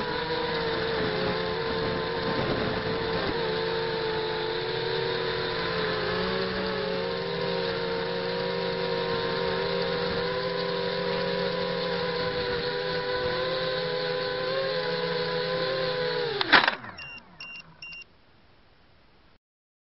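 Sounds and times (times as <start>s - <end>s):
drone motors whining: 0.0s - 18.0s.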